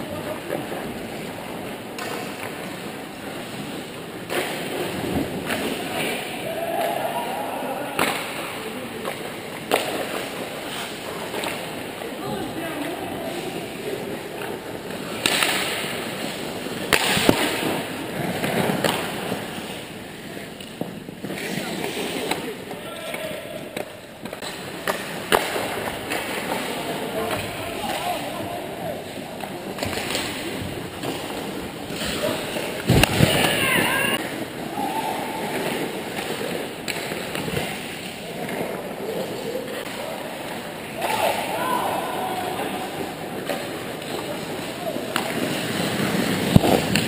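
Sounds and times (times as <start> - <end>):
skates scraping on ice: 0.0 - 7.3, 8.0 - 47.0
hockey sticks and puck cracking: 0.1 - 47.0
sharp knocks of sticks or puck: 8.0 - 10.2, 15.1 - 16.0, 16.9 - 17.8, 23.8 - 28.2.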